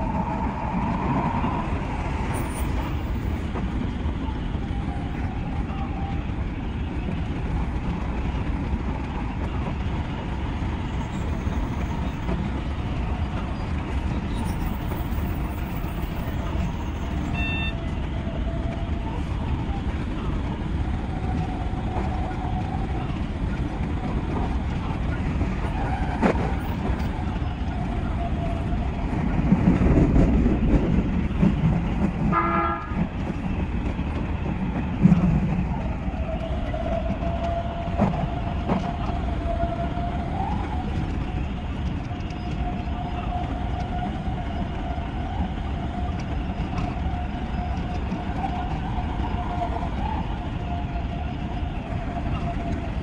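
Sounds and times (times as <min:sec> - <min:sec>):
electric train rumble: 0:00.0 - 0:53.0
train horn toot: 0:17.2 - 0:18.0, 0:32.2 - 0:33.2.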